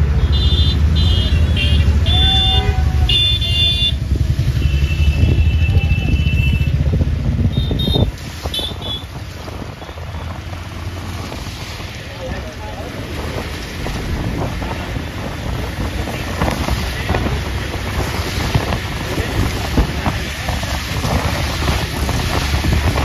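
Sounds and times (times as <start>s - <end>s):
engine and road rumble: 0.0s - 23.0s
wind and traffic noise: 0.0s - 23.0s
high-pitched car horn toots: 0.1s - 6.8s, 7.5s - 9.1s.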